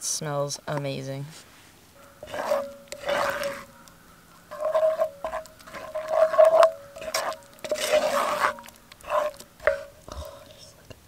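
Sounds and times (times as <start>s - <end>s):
wooden spoon scraping pot: 2.1s - 10.8s.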